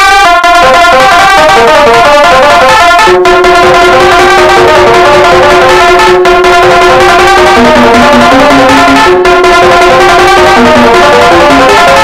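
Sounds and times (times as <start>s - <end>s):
music remix of alarm tones: 0.0s - 12.0s.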